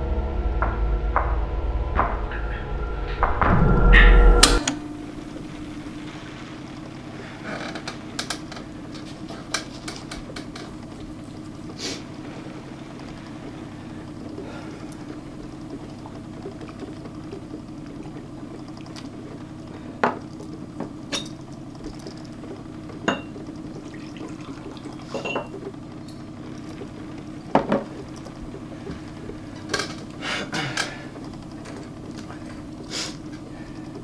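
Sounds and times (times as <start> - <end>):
steady low hum: 0.0 - 34.0
whisky pouring: 10.6 - 30.2
crystal glasses clinking: 23.1 - 23.4, 25.1 - 25.6.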